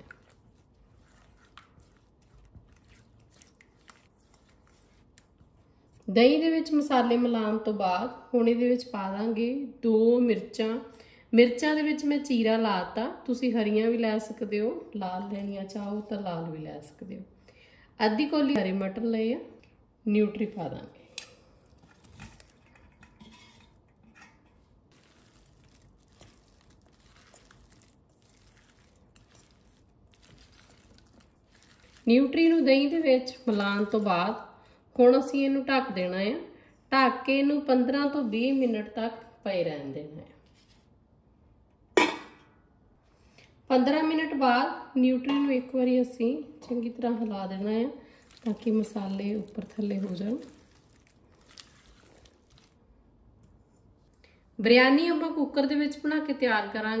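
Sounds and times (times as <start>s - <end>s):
spatula squishing in yogurt: 0.0s - 7.0s, 15.1s - 17.0s, 19.6s - 34.9s, 46.9s - 54.5s.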